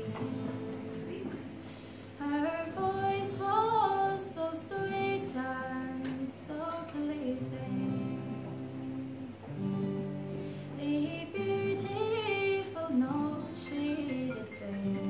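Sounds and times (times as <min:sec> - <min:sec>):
acoustic guitar: 0:00.0 - 0:15.0
woman singing a slow ballad: 0:02.1 - 0:09.4, 0:10.7 - 0:15.0.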